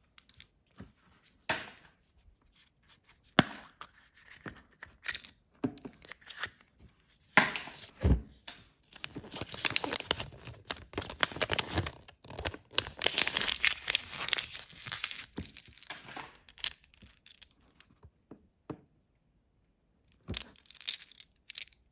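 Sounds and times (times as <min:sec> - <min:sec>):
paper leaflet crinkling: 0:09.0 - 0:16.8.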